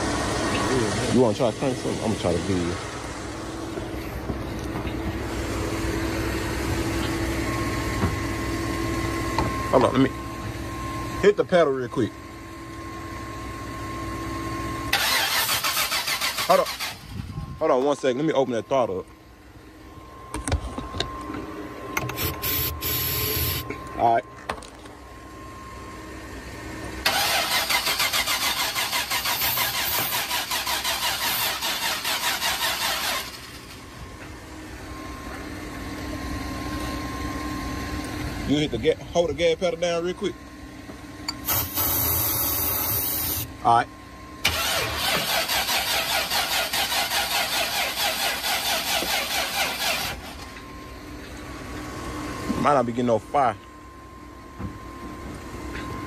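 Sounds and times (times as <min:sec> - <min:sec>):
engine cranking on starter: 0:14.9 - 0:17.2, 0:27.0 - 0:33.8, 0:44.4 - 0:50.5.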